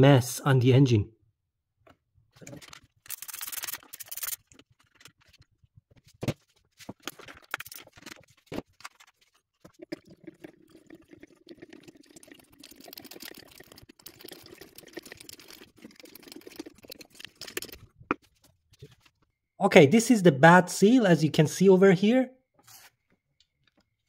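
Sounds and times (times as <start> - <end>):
fluid sloshing: 9.1 - 17.9.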